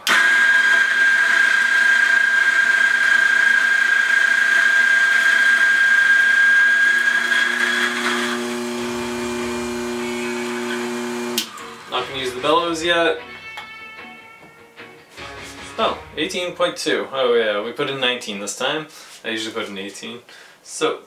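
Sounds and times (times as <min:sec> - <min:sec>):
coffee grinder whining: 0:00.0 - 0:12.6.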